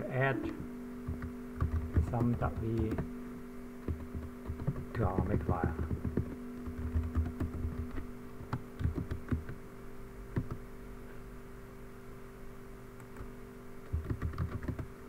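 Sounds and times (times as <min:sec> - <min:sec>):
low steady hum: 0:00.0 - 0:15.0
keyboard typing: 0:01.0 - 0:03.1, 0:03.8 - 0:09.6, 0:10.3 - 0:10.6, 0:13.1 - 0:14.9.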